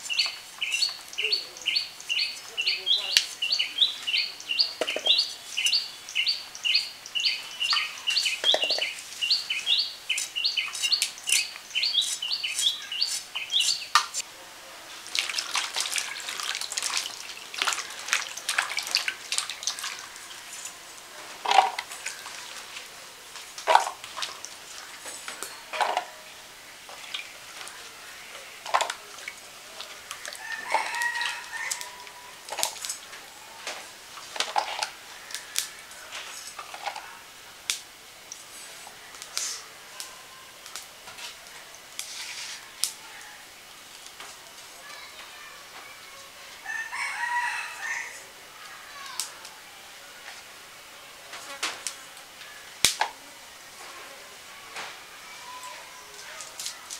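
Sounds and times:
bird chirping: 0.0 - 14.2
hands splashing in water: 15.0 - 20.2
chicken calling: 30.0 - 32.4.

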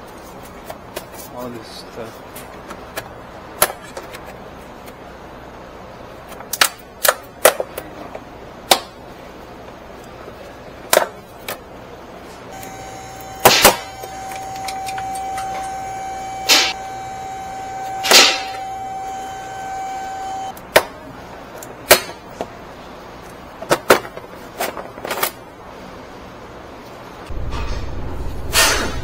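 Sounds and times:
steady mid-pitched whine: 12.5 - 20.6.

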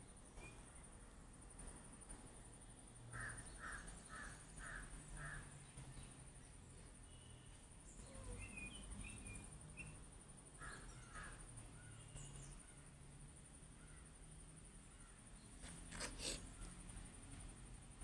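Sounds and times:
crow cawing: 3.1 - 5.5, 10.6 - 11.4
small birds chirping: 3.2 - 13.0.

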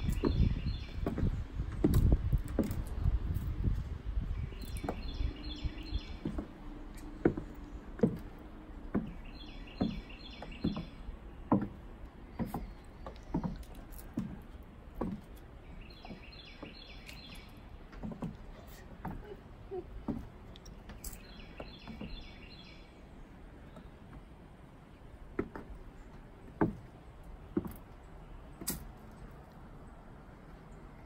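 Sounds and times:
bird singing: 0.0 - 1.8, 4.3 - 24.2
high heels on wooden boards: 0.1 - 3.9, 4.5 - 22.7, 23.6 - 29.1.

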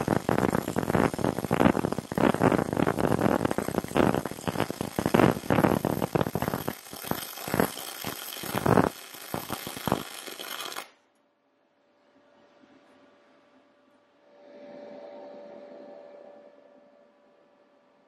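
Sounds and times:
welding arc crackling: 0.0 - 11.0.

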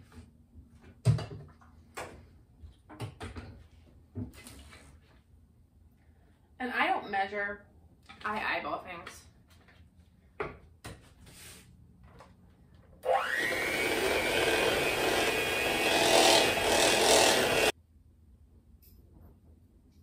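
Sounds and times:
electric hand mixer whining: 13.0 - 17.7.

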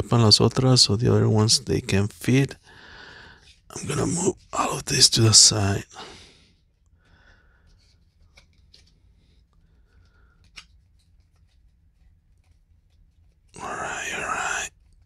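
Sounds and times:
cards rustling and clicking: 7.6 - 13.6.

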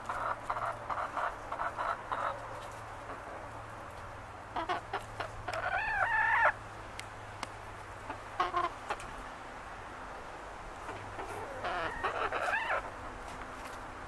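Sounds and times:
chickens clucking: 0.0 - 6.6, 8.0 - 9.3, 10.8 - 13.3.

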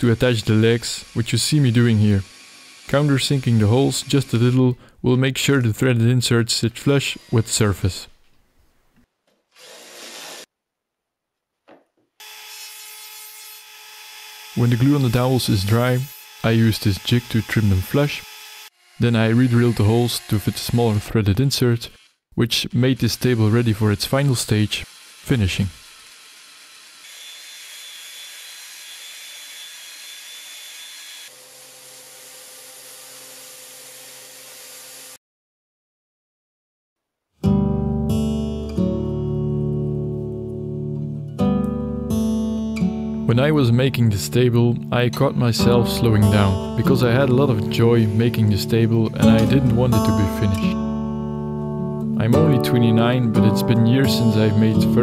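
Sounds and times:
orbital sander humming: 0.0 - 4.5, 13.6 - 21.1, 22.8 - 35.1
belt sander whirring: 0.0 - 4.8, 6.8 - 8.0, 13.6 - 35.2
drill bit grinding into wood: 0.0 - 4.8, 6.9 - 7.8, 9.5 - 10.5, 12.2 - 35.2
trim router whining: 0.0 - 4.8, 7.0 - 7.6, 13.5 - 22.1, 22.8 - 35.2.

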